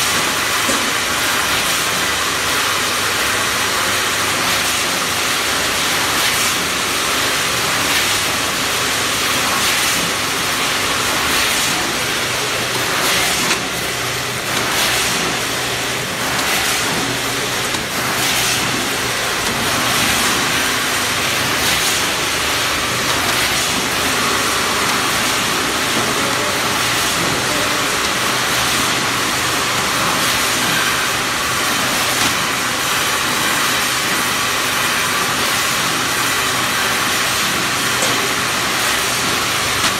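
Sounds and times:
packing machine running: 0.0s - 39.9s.

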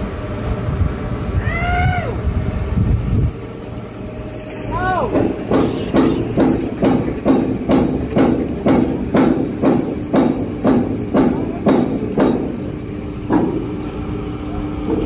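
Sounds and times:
hammer blows on steel: 4.8s - 12.7s.

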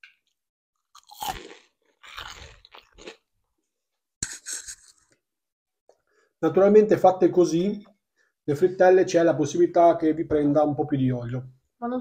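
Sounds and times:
crunchy chewing: 0.8s - 3.3s.

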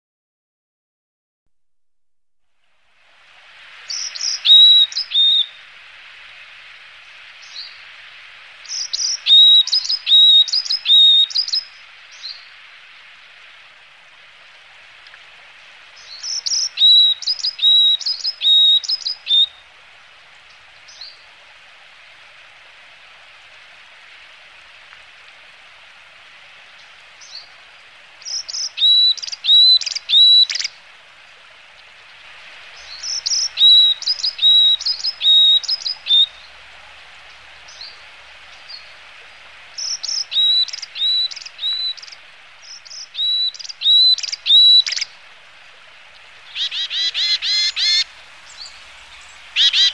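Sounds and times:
steady high background hiss: 2.4s - 49.9s
bird chirping: 3.9s - 5.6s, 16.0s - 19.6s, 28.2s - 30.7s, 39.8s - 45.1s, 46.5s - 49.9s.

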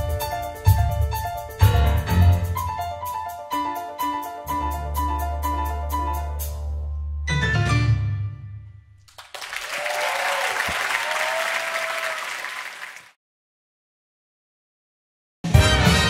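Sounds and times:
audience applauding: 9.1s - 13.2s.

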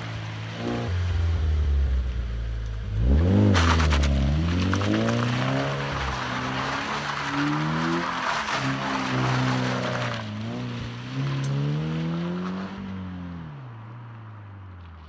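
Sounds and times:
car engine revving: 0.0s - 13.6s
tyres spinning on wet gravel: 3.0s - 11.4s.

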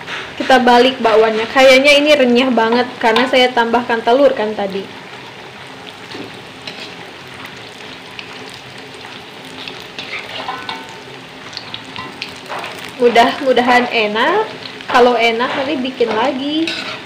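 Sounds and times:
fritters sizzling in hot oil: 0.0s - 17.0s
metal spatula scraping a wok: 6.6s - 7.0s, 9.8s - 10.9s, 15.4s - 17.0s.

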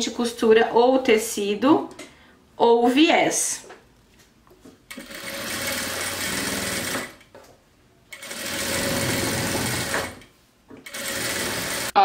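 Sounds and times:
sewing machine stitching: 4.9s - 7.2s, 8.1s - 12.0s.

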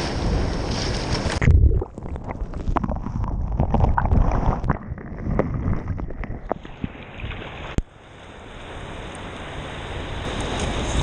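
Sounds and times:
wave splashing: 0.1s - 9.1s
muffled underwater sloshing: 1.1s - 7.9s.

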